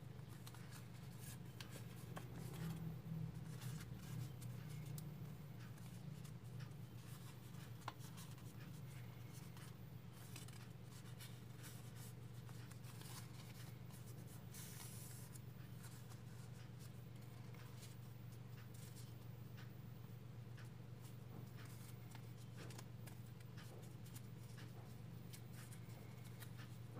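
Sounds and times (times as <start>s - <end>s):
paper rustling and crinkling: 7.0s - 16.6s.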